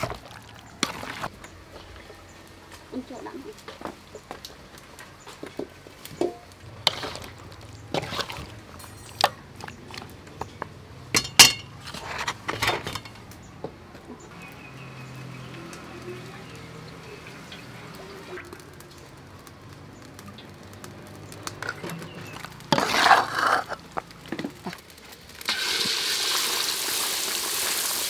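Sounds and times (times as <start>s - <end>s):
metal pans clinking: 5.4s - 10.1s, 11.1s - 13.3s
oil pouring into wok: 25.5s - 28.0s.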